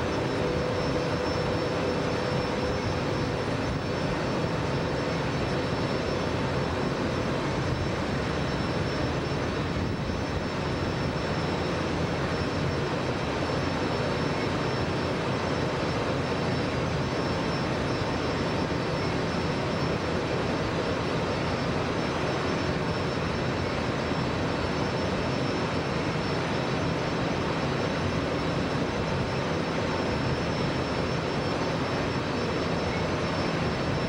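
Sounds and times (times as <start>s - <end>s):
boat engine drone: 0.0s - 34.0s.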